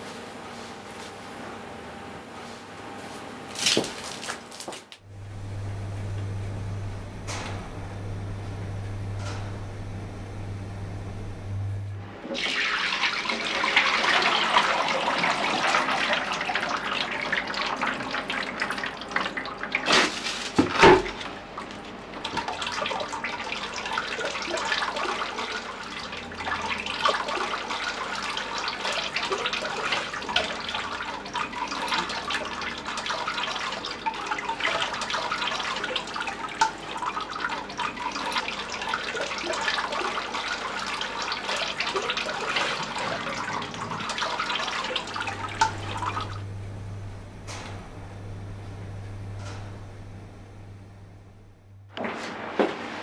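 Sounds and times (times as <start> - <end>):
low steady hum: 5.0 - 12.4, 21.2 - 51.9
liquid pouring and splashing: 12.3 - 46.6.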